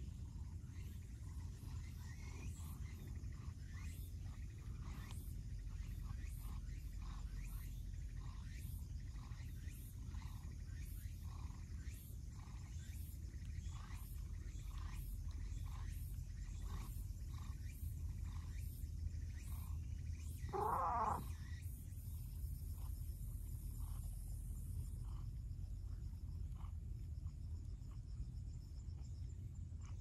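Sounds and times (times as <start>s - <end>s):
cat meowing: 20.5s - 21.2s.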